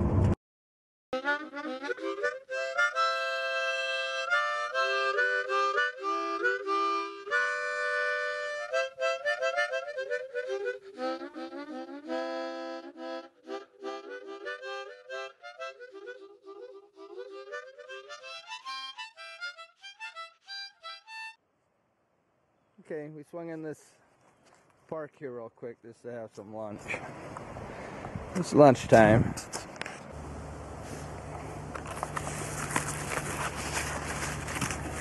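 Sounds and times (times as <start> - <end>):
solo wind instrument tune: 1.2 - 21.4.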